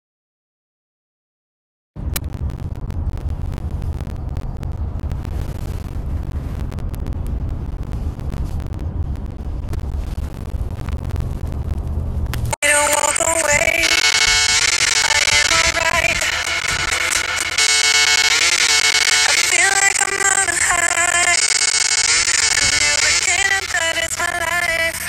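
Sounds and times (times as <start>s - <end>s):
car cabin low rumble: 2.0s - 12.6s.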